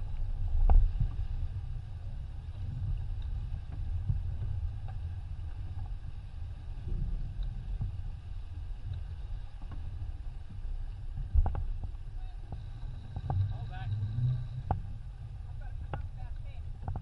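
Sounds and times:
water rushing along hull: 0:00.0 - 0:17.0
wind buffeting microphone: 0:00.0 - 0:17.0.

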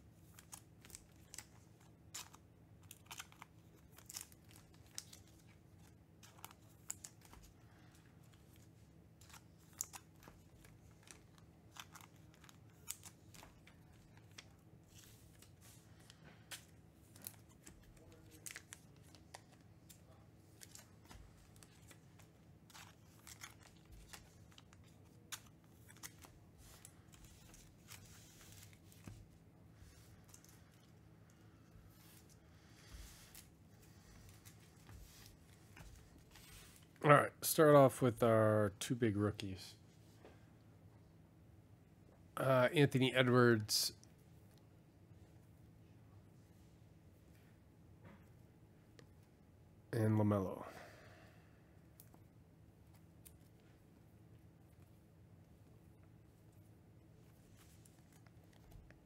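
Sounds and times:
low room hum: 0:00.0 - 0:59.0
plastic sleeves crinkling: 0:00.2 - 0:37.0.

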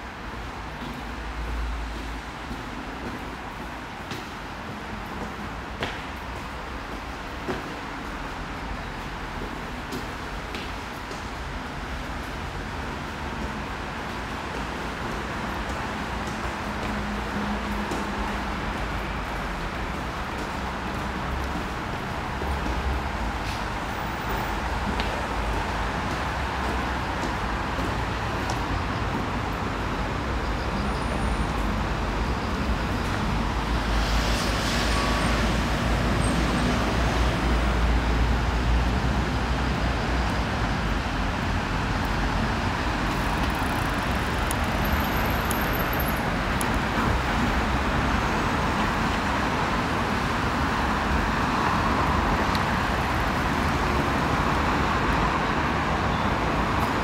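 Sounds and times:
cars passing: 0:00.0 - 0:57.0.

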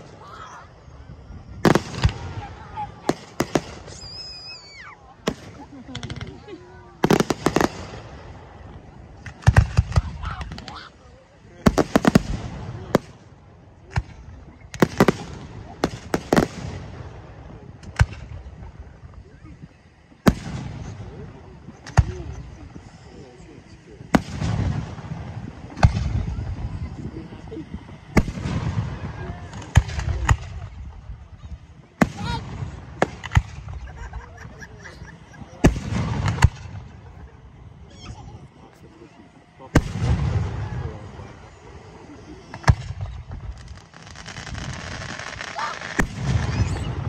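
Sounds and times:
fireworks bursting: 0:00.0 - 0:47.0
low rumbling echo: 0:23.6 - 0:43.8
firework shells bursting: 0:32.0 - 0:37.6.

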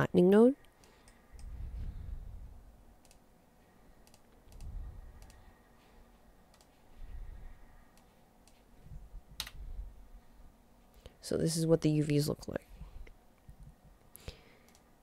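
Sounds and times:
computer mouse clicks: 0:00.6 - 0:01.5, 0:03.0 - 0:03.2, 0:04.0 - 0:05.5, 0:06.5 - 0:06.8, 0:07.9 - 0:08.7, 0:09.4 - 0:09.6, 0:14.6 - 0:14.9
soft low rumbles: 0:00.6 - 0:14.1.

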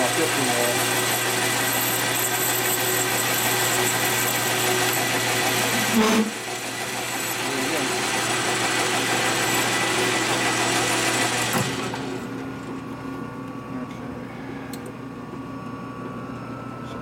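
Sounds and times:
metal lathe cutting: 0:00.0 - 0:12.3.

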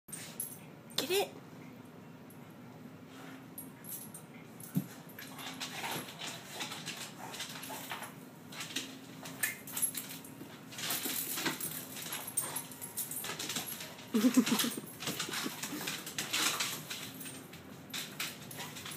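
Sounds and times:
dog claws clicking on wood floor: 0:10.8 - 0:18.9
dog cry: 0:14.1 - 0:15.8
dog whimpering: 0:14.1 - 0:15.9.

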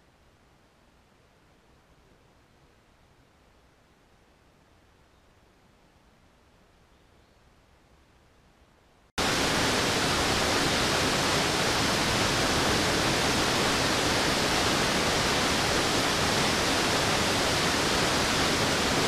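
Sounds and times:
waterfall rushing onto rocks: 0:09.2 - 0:19.0.

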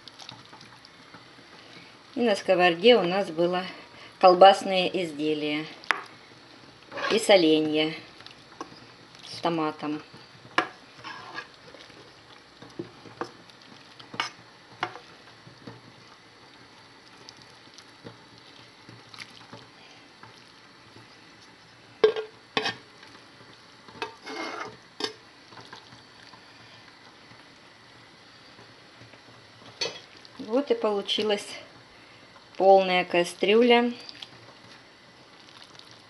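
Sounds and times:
spoon scraping and stirring: 0:06.9 - 0:07.3, 0:10.1 - 0:13.4, 0:14.0 - 0:15.2, 0:22.0 - 0:23.2, 0:23.9 - 0:26.4.

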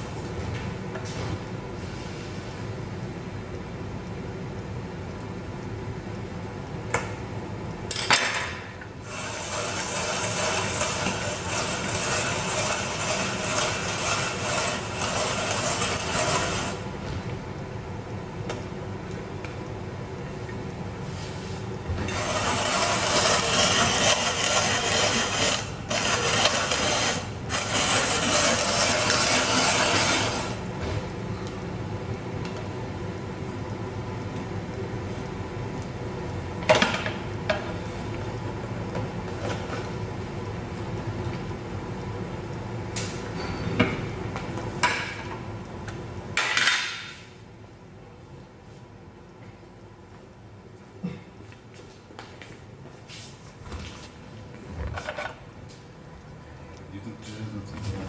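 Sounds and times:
spiralizer rasping: 0:09.0 - 0:16.8, 0:22.1 - 0:30.6.

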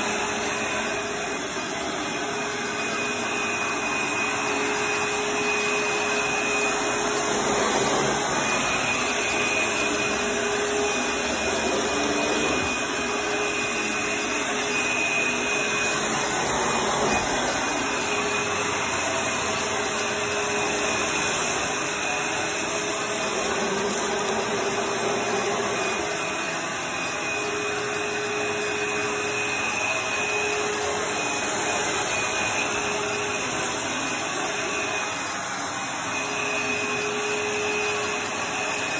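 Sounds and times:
upright vacuum cleaner running: 0:00.0 - 0:38.9.

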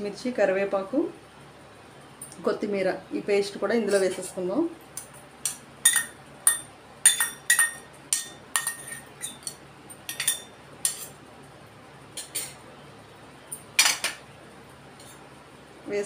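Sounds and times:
spoon clinking in steel bowl: 0:05.8 - 0:11.1.

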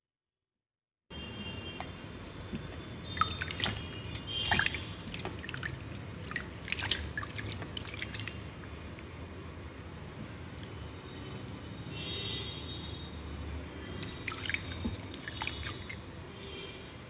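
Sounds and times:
wet soap rubbing in water: 0:01.6 - 0:08.7, 0:13.9 - 0:16.4
water dripping: 0:01.6 - 0:09.1, 0:13.8 - 0:16.4.

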